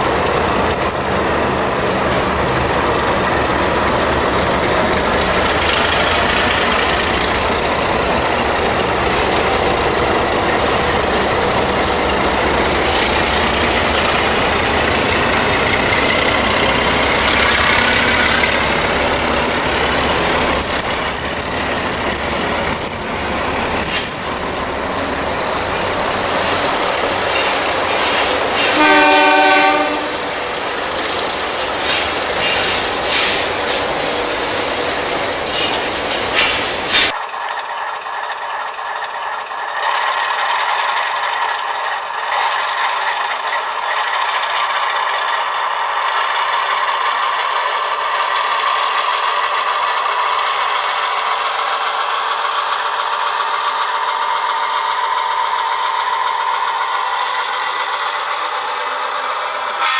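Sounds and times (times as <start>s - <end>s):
diesel locomotives accelerating: 0.0s - 59.9s
locomotive horn blast: 28.6s - 30.3s.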